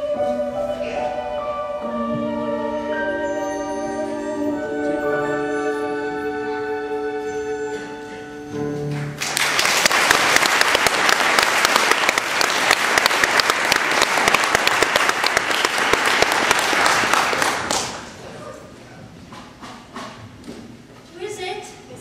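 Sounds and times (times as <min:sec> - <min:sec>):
held musical chord: 0:00.0 - 0:09.0
audience applause: 0:08.9 - 0:18.2.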